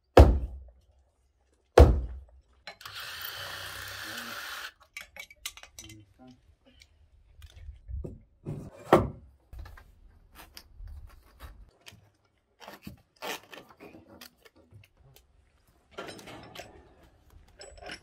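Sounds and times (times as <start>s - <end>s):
knocks and scraping on timber logs: 7.3s - 15.0s.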